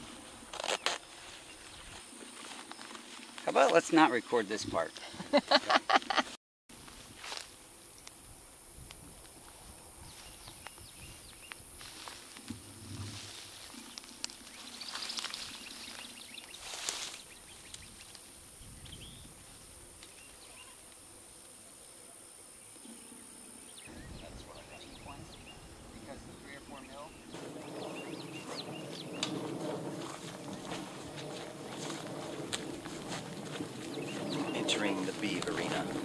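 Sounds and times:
rustling hiss: 6.8s - 36.0s
small chirps and ticks: 10.1s - 11.7s, 13.5s - 21.6s.

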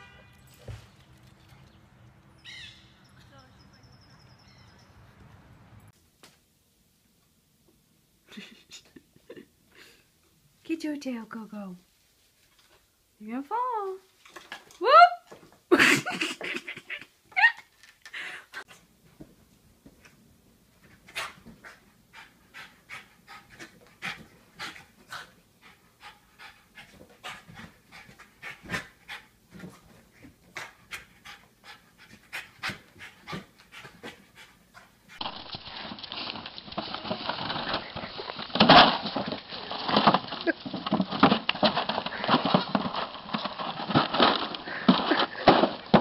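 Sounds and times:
dog panting: 21.0s - 35.2s.

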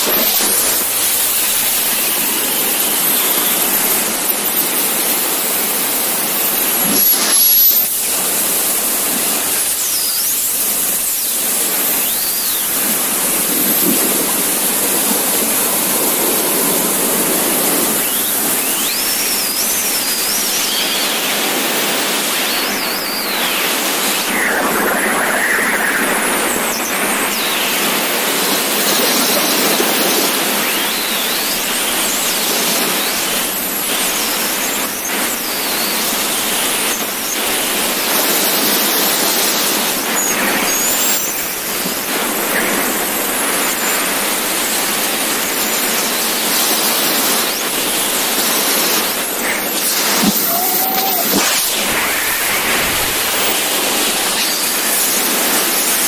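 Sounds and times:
faint wavering whistles: 17.8s - 32.0s, 48.7s - 55.8s
loud wind rushing: 23.5s - 27.7s, 49.9s - 55.0s.

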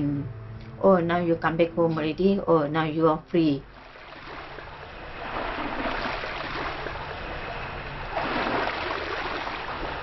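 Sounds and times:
seawater sloshing and lapping: 3.7s - 10.0s.

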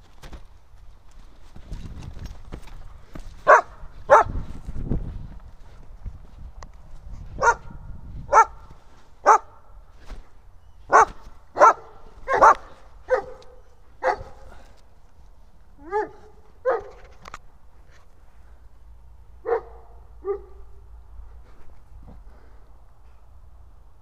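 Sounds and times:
dog barking: 3.4s - 4.4s, 7.4s - 9.6s, 10.9s - 14.6s, 15.8s - 17.0s, 19.4s - 20.8s.

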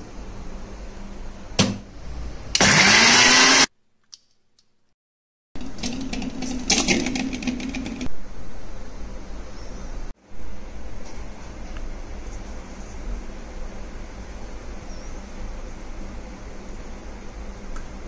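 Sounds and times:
mixer grinder motor: 2.5s - 3.7s.

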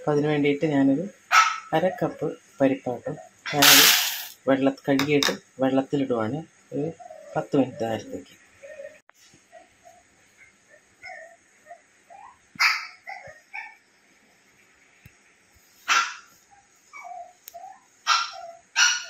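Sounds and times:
dog barking: 1.3s - 1.7s, 15.9s - 16.3s, 18.1s - 19.0s
dog yelping: 10.7s - 13.8s, 15.9s - 19.0s.

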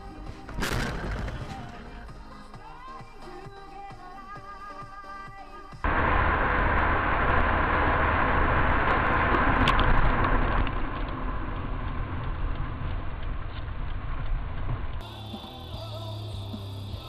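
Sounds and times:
car road and engine noise: 5.8s - 17.0s.

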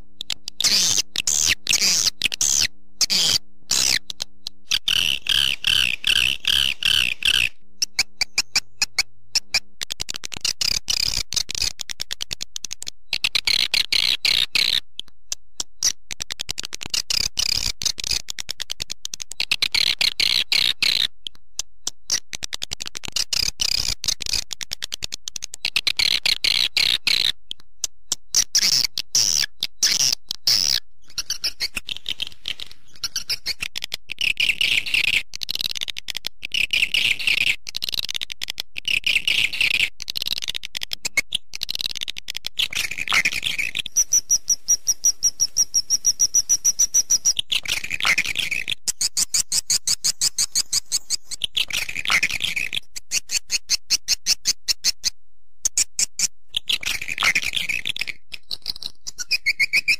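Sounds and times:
swiftlet twittering chirps: 42.8s - 51.4s.

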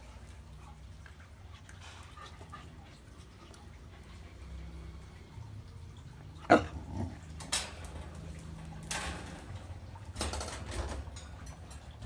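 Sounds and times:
puppy barking: 6.4s - 7.1s.

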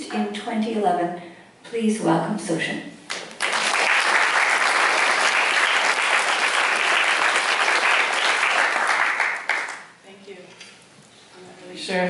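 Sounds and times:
audience applause: 3.1s - 9.9s.

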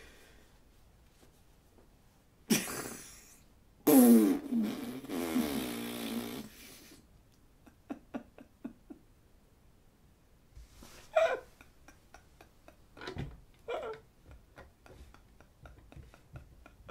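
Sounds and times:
man blowing a raspberry: 3.8s - 6.7s.

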